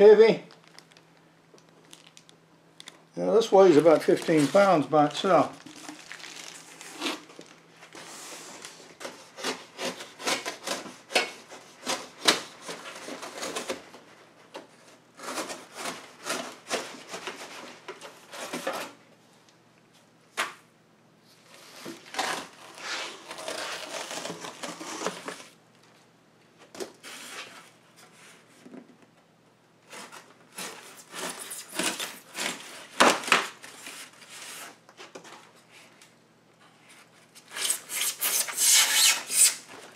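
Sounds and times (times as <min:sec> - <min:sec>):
styrofoam packing rubbing: 0:03.6 - 0:13.8, 0:21.5 - 0:25.6, 0:29.9 - 0:34.8, 0:37.4 - 0:39.9
blade cutting cardboard: 0:09.0 - 0:13.8, 0:37.5 - 0:39.6.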